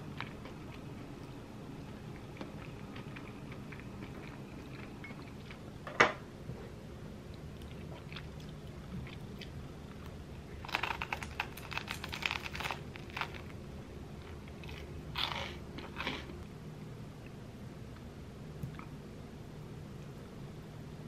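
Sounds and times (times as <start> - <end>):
crunching and chewing sandwich: 7.6 - 13.6, 14.2 - 16.4.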